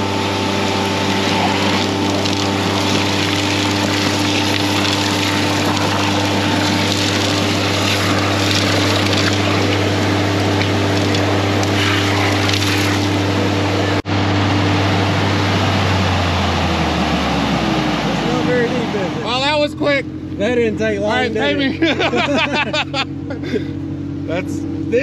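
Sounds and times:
truck low hum: 0.0s - 25.0s
rushing hiss of suction: 1.0s - 13.2s.

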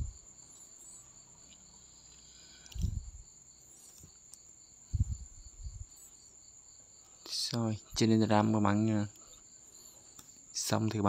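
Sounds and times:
insect trill: 0.0s - 11.0s
low thumps: 4.9s - 5.9s.

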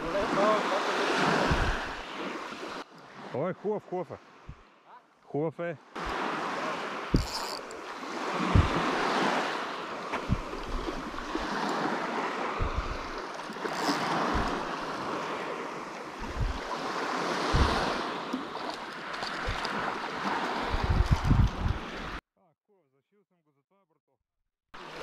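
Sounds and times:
sea waves washing: 0.0s - 4.9s, 5.6s - 22.2s, 24.8s - 25.0s
wind buffeting microphone: 1.2s - 2.0s, 7.1s - 9.5s, 10.1s - 18.2s, 19.3s - 22.2s.

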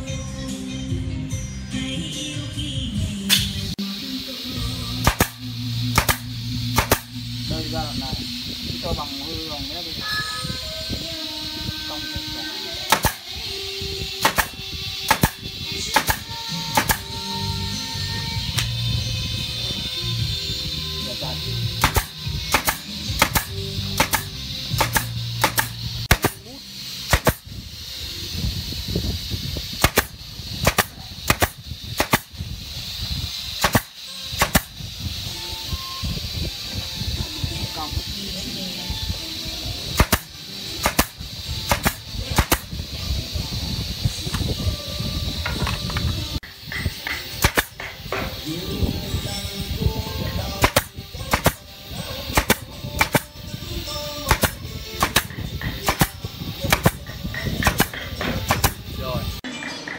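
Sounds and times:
air hose hiss: 3.2s - 59.4s
pneumatic nailer firing nails: 3.3s - 3.6s, 4.8s - 8.1s, 12.7s - 19.0s, 21.2s - 27.9s, 29.2s - 35.8s, 39.8s - 43.0s, 45.4s - 48.5s, 50.4s - 59.0s.

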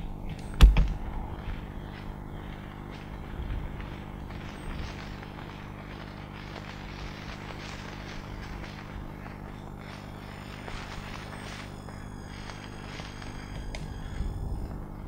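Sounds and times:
steady low hum: 0.0s - 15.0s
wind gusts: 0.8s - 5.8s.

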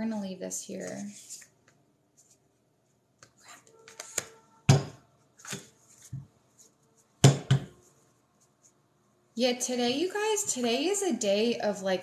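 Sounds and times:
cards shuffling: 3.2s - 4.4s, 5.4s - 6.7s
cards knocking on table: 7.2s - 7.7s.

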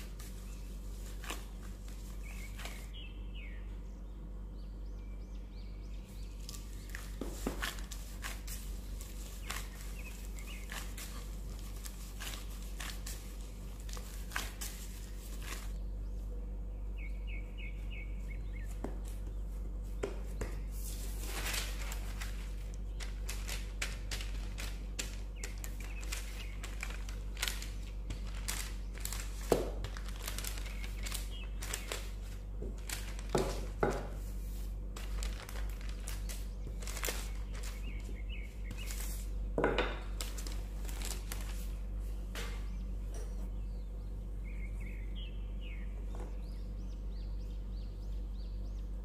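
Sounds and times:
baking paper rustling: 0.0s - 3.0s, 6.1s - 15.8s, 17.8s - 43.6s.

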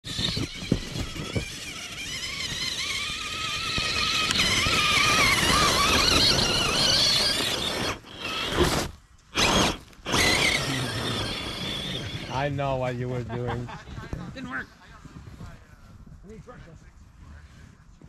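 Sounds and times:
rc truck motor whine: 0.0s - 13.0s.

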